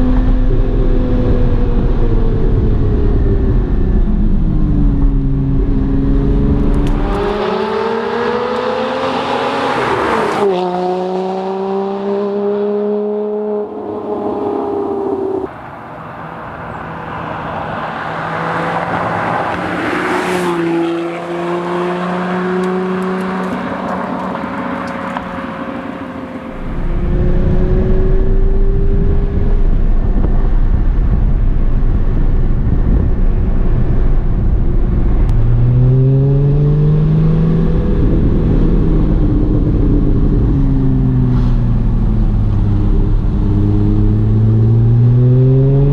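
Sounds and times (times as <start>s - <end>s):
car engine rumble from cabin: 0.0s - 8.7s, 22.0s - 45.9s
sports car drive-by: 0.0s - 45.9s.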